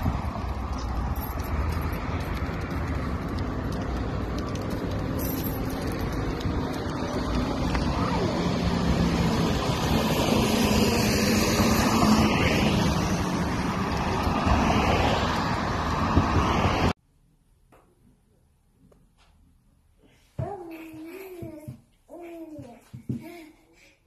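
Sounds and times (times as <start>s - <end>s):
car passing close: 0.0s - 17.0s
road traffic: 0.0s - 17.3s.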